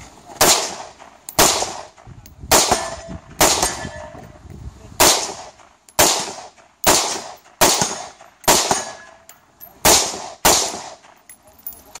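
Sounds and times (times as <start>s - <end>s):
rifle shots with echo: 0.4s - 3.9s, 5.0s - 9.2s, 9.8s - 11.1s.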